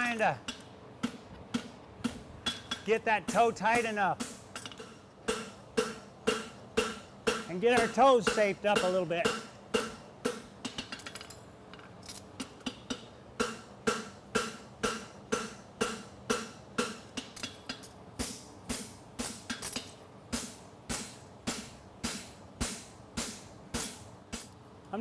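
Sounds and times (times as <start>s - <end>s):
hammer striking horseshoe on anvil: 0.0s - 11.3s, 12.4s - 24.5s.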